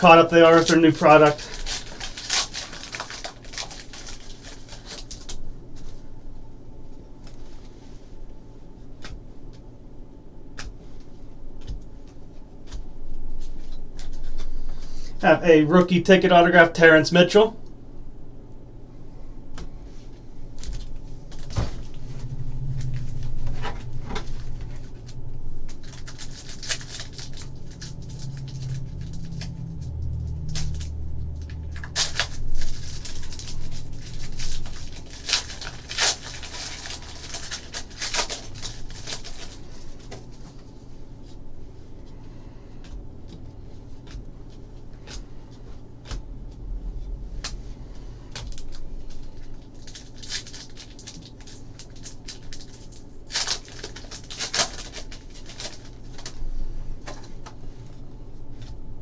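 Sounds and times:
foil packs crinkling: 0.0s - 6.1s, 20.5s - 41.4s, 47.0s - 58.8s
low hum: 0.0s - 59.0s.

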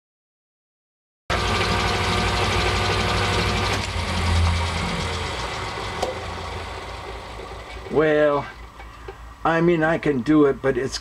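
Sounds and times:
machine whine: 1.3s - 9.4s
milling machine hum: 1.3s - 9.4s.

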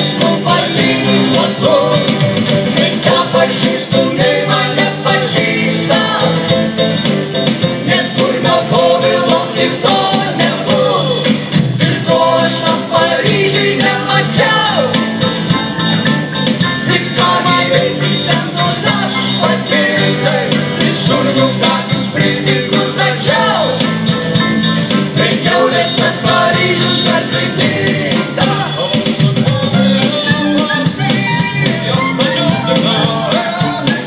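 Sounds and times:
acoustic guitar: 0.0s - 34.0s
drums: 0.0s - 34.0s
electric bass: 0.0s - 34.0s
keyboard: 0.0s - 34.0s
clarinet: 29.5s - 34.0s.

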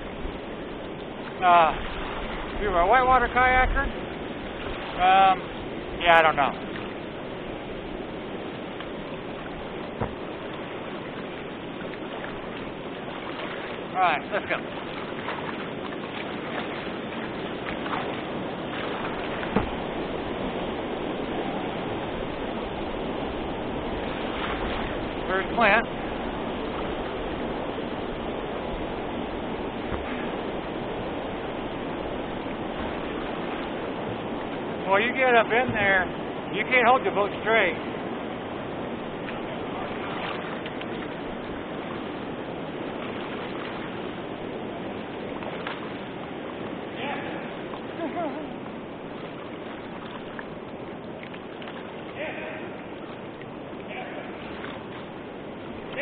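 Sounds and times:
river water rushing over rocks: 0.0s - 2.6s, 3.5s - 56.0s
sharp knock: 19.5s - 19.8s.

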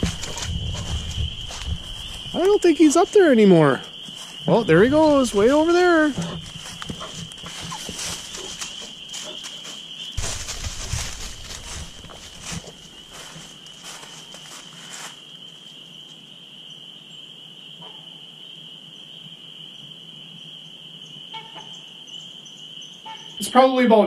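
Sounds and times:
high-pitched animal chorus: 0.0s - 14.0s
footsteps crunching dry leaves: 0.0s - 15.5s.

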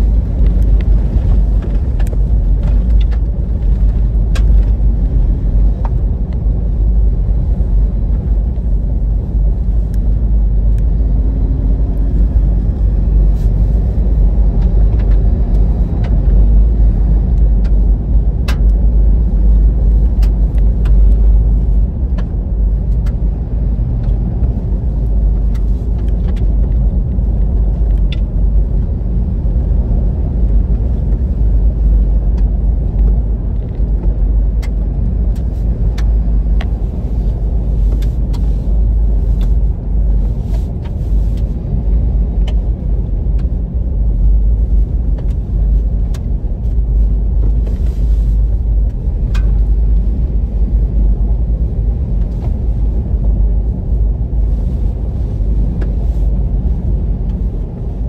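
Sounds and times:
tyres rumbling on gravel: 0.0s - 10.4s.

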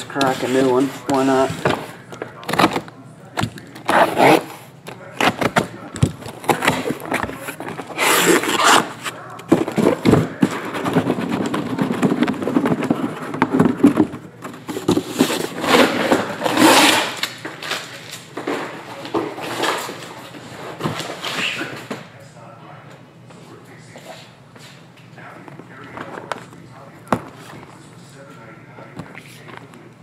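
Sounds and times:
cardboard scraping and rustling: 0.0s - 2.9s, 3.6s - 21.7s.

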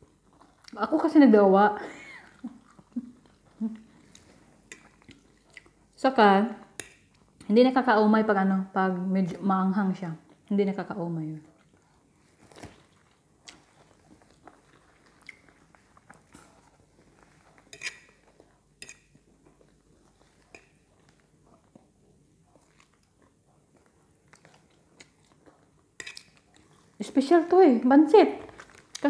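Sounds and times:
faint chewing: 0.0s - 1.2s, 1.9s - 6.0s, 10.0s - 27.7s, 28.4s - 29.0s
mouth smacks and clicks: 15.2s - 16.5s.

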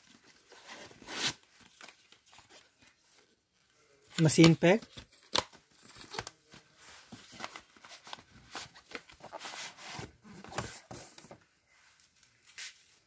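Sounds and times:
cardboard rustling and scraping: 6.5s - 11.5s.

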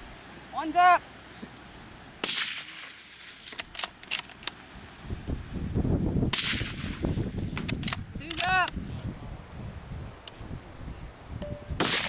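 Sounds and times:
suppressed rifle shots: 2.2s - 3.9s, 6.3s - 7.0s, 11.8s - 12.0s
rifle bolt clicking: 3.5s - 4.6s, 7.6s - 8.8s.

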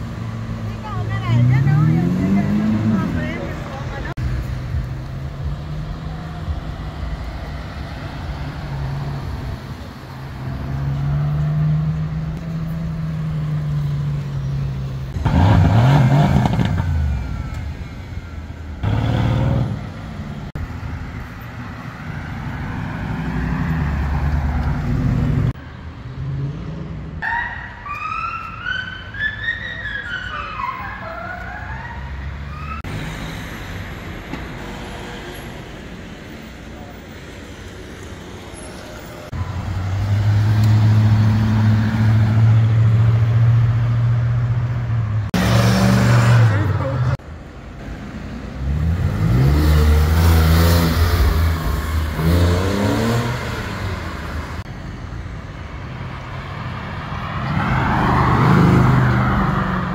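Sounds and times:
sports car engines accelerating: 0.0s - 17.9s, 48.4s - 54.7s
police siren wailing: 27.2s - 32.9s.

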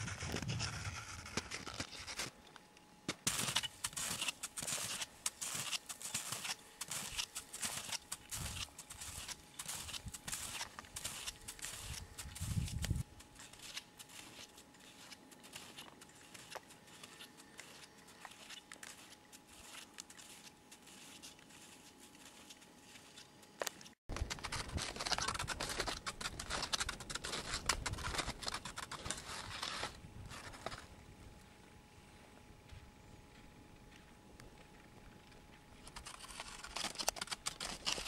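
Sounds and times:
snowshoe footsteps crunching snow: 3.3s - 30.9s.

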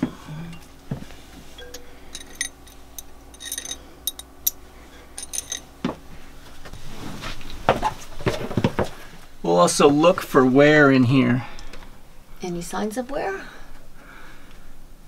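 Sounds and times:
light metallic clinks: 1.6s - 4.6s, 5.2s - 5.7s.

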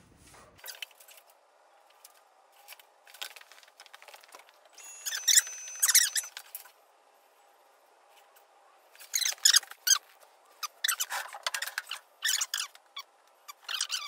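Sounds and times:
short high-pitched squeaks: 4.8s - 6.4s, 9.0s - 10.0s, 10.6s - 11.2s.

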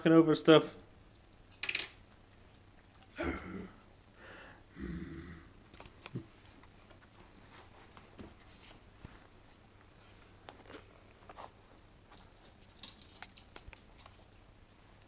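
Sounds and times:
puppy claws clicking on tiles: 12.6s - 15.0s.

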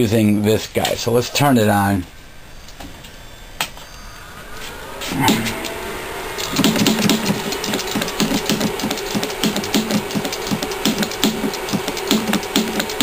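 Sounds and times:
solenoid motor clacking and buzzing: 6.5s - 13.0s.

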